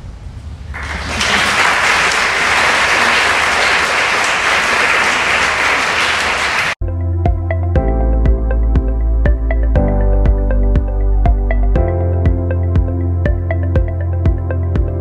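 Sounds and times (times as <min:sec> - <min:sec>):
audience applauding: 0:00.7 - 0:06.8
ambient synthesizer music: 0:06.8 - 0:15.0.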